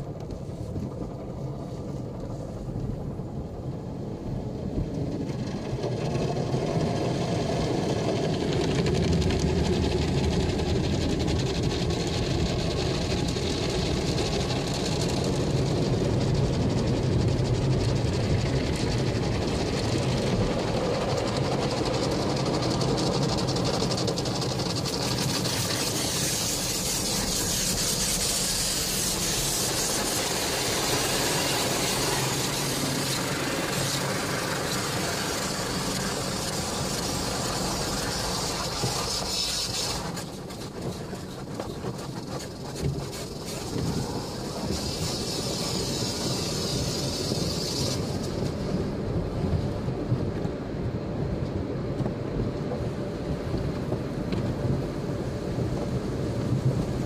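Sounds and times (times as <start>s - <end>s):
car wash machinery humming: 0.0s - 57.0s
water spray hissing on car: 5.4s - 49.0s.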